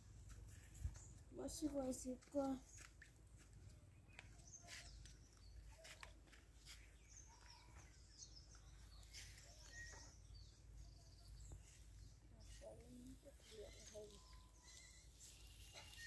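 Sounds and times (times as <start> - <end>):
distant bird chirps: 3.9 - 16.0.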